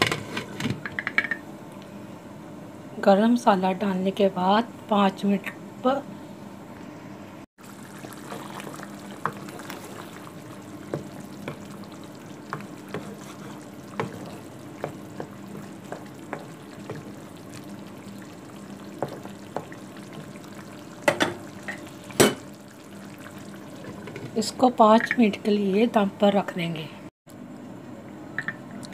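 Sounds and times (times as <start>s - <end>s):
curry bubbling and sizzling: 7.6s - 25.6s.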